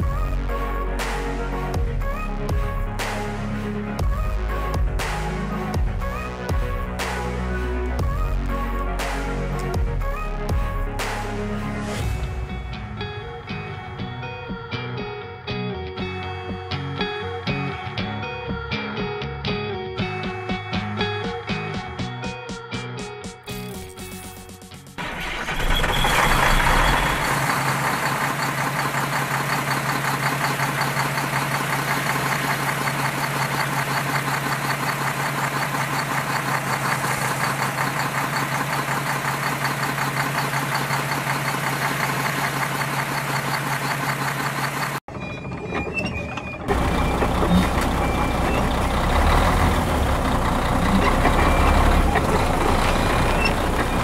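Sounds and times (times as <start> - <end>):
deeper engine sound: 0.0 - 15.2, 25.0 - 54.0
engine droning with fast rattle: 25.0 - 54.0.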